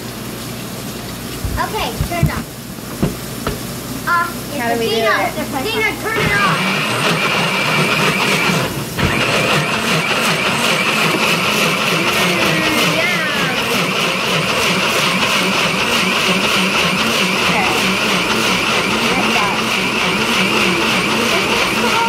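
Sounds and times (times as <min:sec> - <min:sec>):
blender motor whirring: 0:06.0 - 0:22.0.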